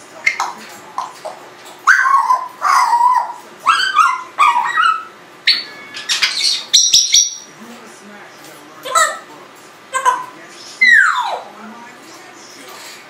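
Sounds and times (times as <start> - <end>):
parrot calls: 0.2 - 7.5, 8.8 - 9.3, 9.9 - 11.6
parrot whistles: 1.9 - 7.5.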